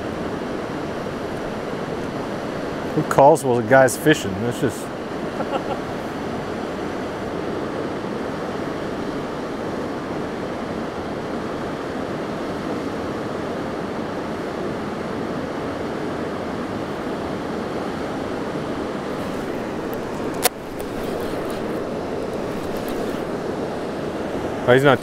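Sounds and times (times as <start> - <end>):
river rushing over rapids: 0.0 - 25.0.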